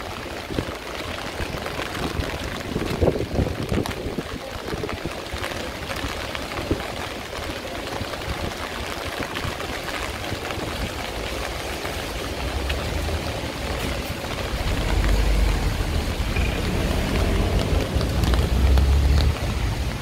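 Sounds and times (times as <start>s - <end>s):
heavy rain on street: 0.0s - 20.0s
low rumble of passing traffic: 12.4s - 20.0s.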